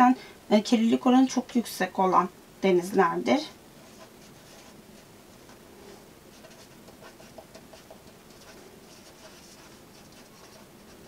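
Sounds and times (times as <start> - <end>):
pen scratching on paper: 3.8 - 4.8, 5.4 - 11.0.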